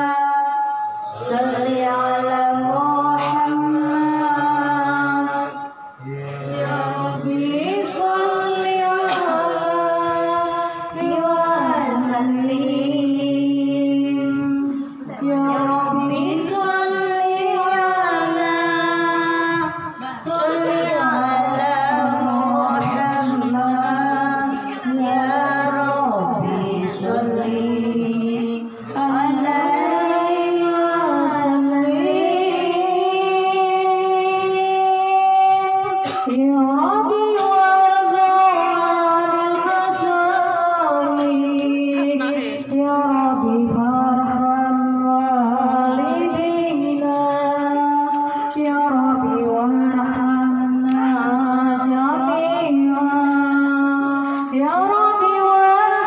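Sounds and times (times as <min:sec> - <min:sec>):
woman singing into a microphone: 0:00.0 - 0:06.0, 0:06.6 - 0:56.0
singer breathing: 0:54.2 - 0:54.6.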